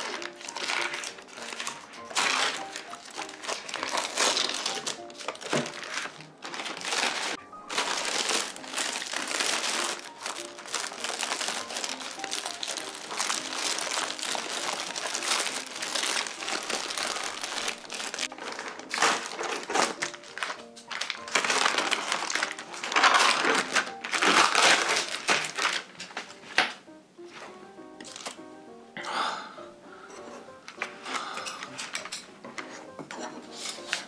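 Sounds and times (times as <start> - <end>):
plastic wrap crinkling: 0.0 - 26.8, 28.0 - 28.4.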